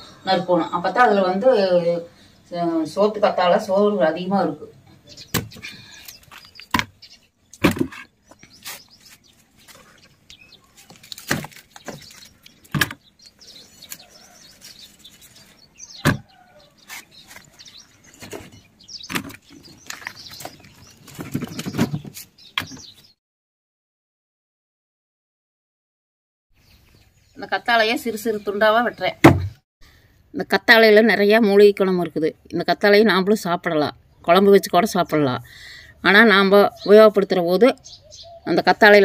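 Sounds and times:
leaves cracking: 8.6 - 12.9
rustling of leaves: 8.6 - 18.6.

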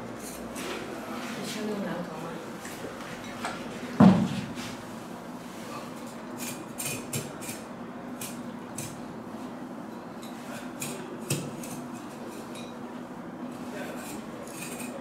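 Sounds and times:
steady low hum: 0.0 - 15.0
knife scraping scaly hide: 13.9 - 15.0.

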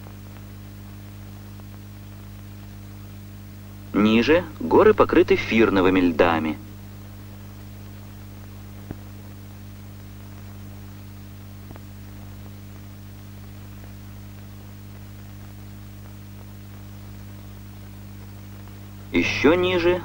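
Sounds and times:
low hum with hiss: 0.0 - 20.0.

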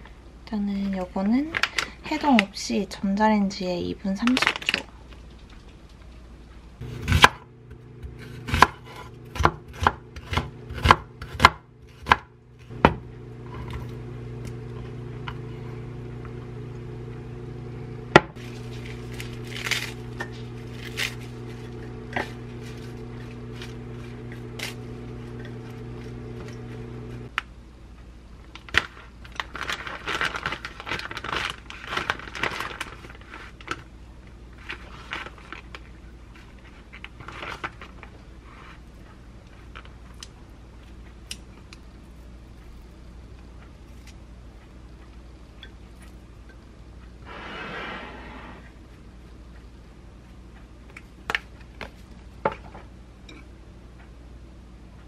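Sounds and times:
steady electrical hum: 0.0 - 55.0
knife chopping on wooden board: 6.8 - 7.4, 8.0 - 13.0
crinkly rustling: 18.4 - 26.8, 28.5 - 33.9, 34.5 - 40.2.

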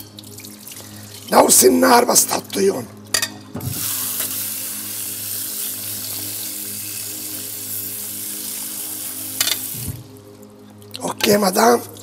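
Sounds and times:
faucet water splashing: 0.0 - 1.4, 3.7 - 10.2.

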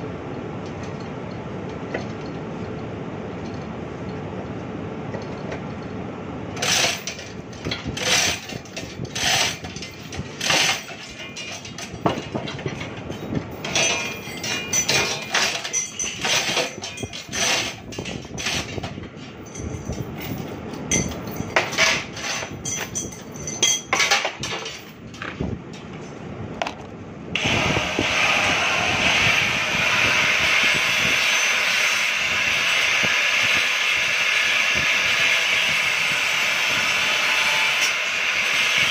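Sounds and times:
loud hissing machine: 27.4 - 38.9.

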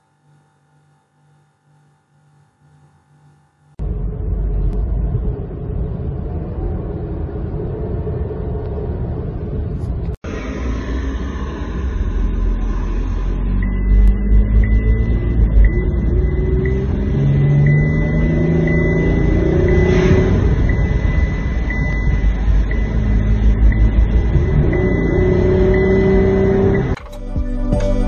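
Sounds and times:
car engine accelerating: 3.8 - 28.0
music: 27.0 - 28.0.

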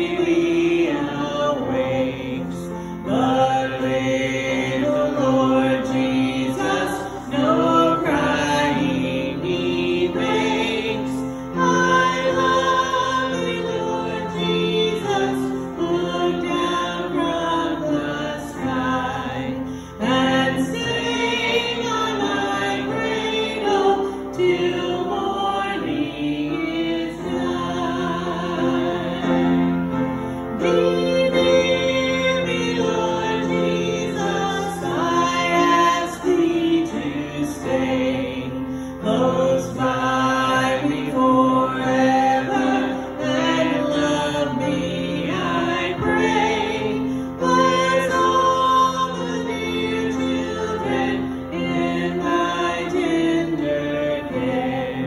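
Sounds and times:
congregation singing a carol: 0.0 - 55.0.

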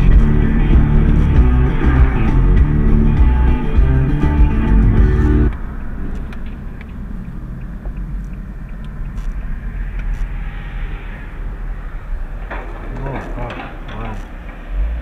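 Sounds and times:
rock music from car stereo: 0.0 - 5.6
car engine and road rumble: 0.0 - 15.0
faint ticks: 6.1 - 10.4.

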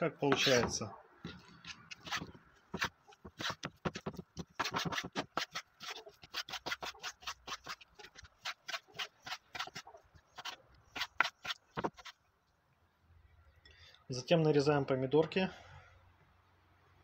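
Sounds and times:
knife cutting on wooden board: 1.3 - 12.2.

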